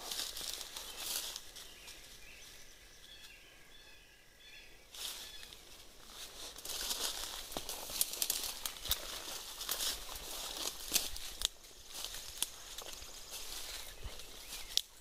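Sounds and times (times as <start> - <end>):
footsteps crunching through dry leaves: 0.0 - 2.5, 4.9 - 15.0
faint bird chirps: 0.8 - 5.8, 13.4 - 15.0.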